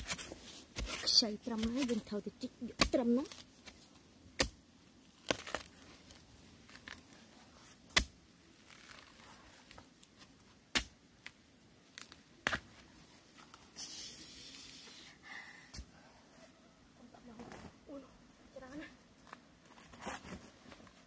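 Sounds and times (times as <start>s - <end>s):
soil scrapes and clicks: 5.1s - 10.3s.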